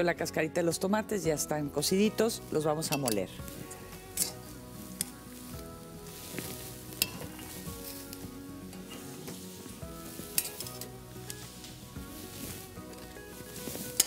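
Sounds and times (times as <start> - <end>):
metal tongs clinking: 2.7 - 3.4, 4.1 - 5.2, 6.9 - 7.6, 10.2 - 11.4.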